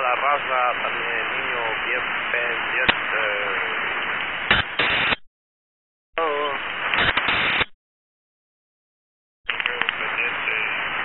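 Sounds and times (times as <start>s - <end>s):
man's voice over radio: 0.0s - 4.0s, 6.2s - 6.6s, 9.5s - 10.8s
radio static hiss: 0.0s - 5.2s, 6.2s - 7.8s, 9.5s - 11.0s
sharp radio clicks: 2.8s - 3.0s, 4.5s - 5.2s, 6.9s - 7.7s, 9.5s - 10.1s.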